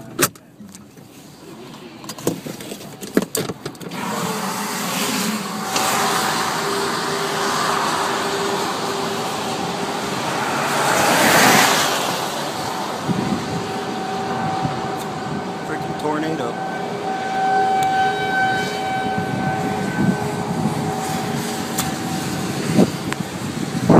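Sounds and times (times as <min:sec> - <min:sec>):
road and wind noise inside car: 0:00.0 - 0:23.9
tyres hissing on wet pavement: 0:03.9 - 0:15.6.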